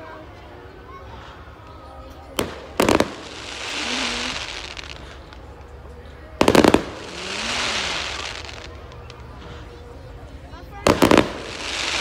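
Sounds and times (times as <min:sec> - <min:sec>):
crackling hiss of fireworks: 0:00.9 - 0:10.1, 0:10.7 - 0:12.0
firework bangs: 0:02.4 - 0:05.0, 0:06.4 - 0:08.8, 0:10.8 - 0:12.0.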